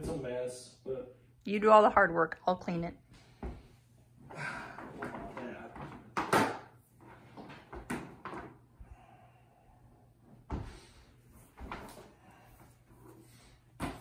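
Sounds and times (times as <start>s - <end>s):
objects knocking and clattering: 4.7s - 8.7s.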